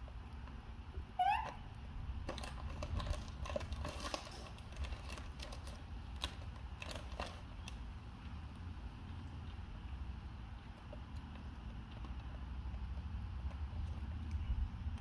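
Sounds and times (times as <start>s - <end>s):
plastic wrapper crinkling: 2.2s - 7.8s.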